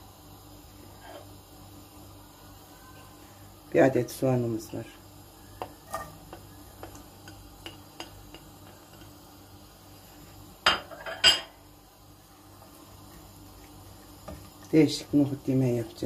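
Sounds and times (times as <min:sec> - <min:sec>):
spatula scraping a plate: 0:00.9 - 0:01.3.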